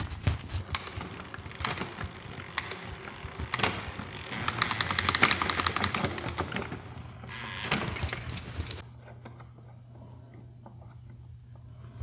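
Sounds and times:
drivetrain clicks: 0.1 - 8.8
bike hub ratcheting ticks: 0.6 - 6.6.

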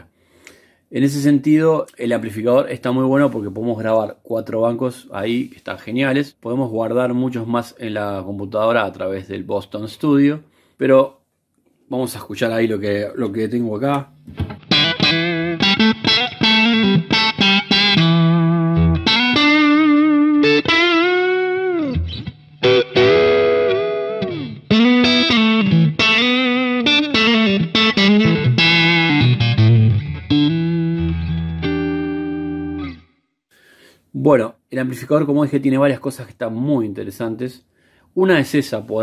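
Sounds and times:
electric guitar lead line: 14.3 - 33.1
guitar chord ringing: 14.6 - 33.1.

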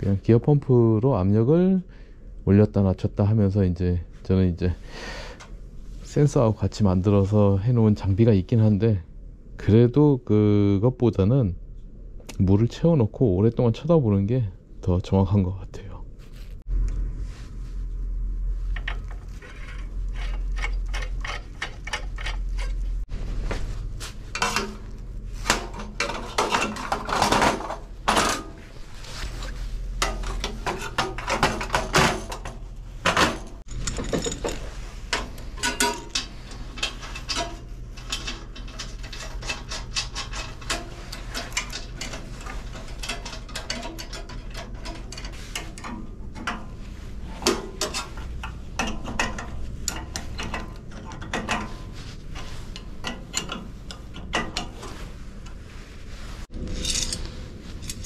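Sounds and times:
steady low hum: 0.0 - 58.0
metal tools clinking: 18.8 - 22.9, 30.0 - 46.8, 47.4 - 55.6, 56.6 - 58.0.

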